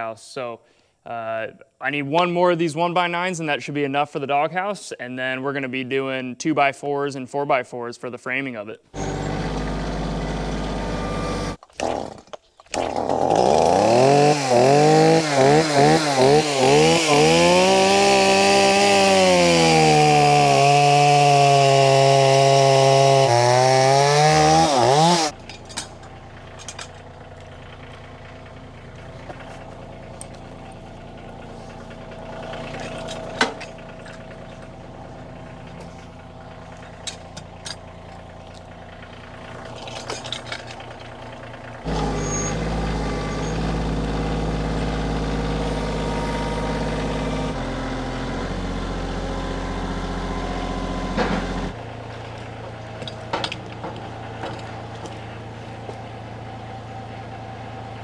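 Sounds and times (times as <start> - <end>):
tractor engine idling: 8.9 - 11.6, 24.9 - 58.0
chainsaw cutting log: 9.0 - 27.6, 29.0 - 38.7, 41.8 - 56.0.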